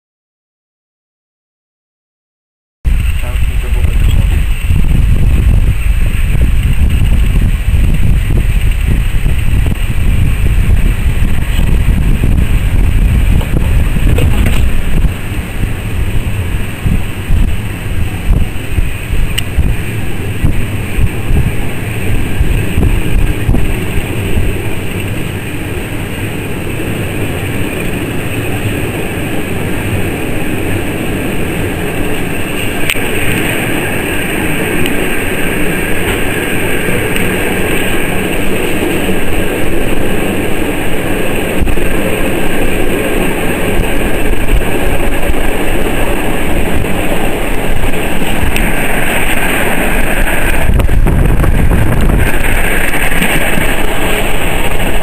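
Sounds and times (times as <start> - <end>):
train hiss: 2.9 - 55.0
train wheels rumbling on rails: 2.9 - 55.0.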